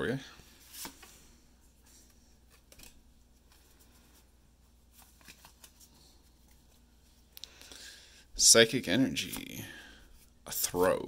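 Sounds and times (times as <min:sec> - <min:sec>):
cards flicking and tapping: 0:02.0 - 0:03.6.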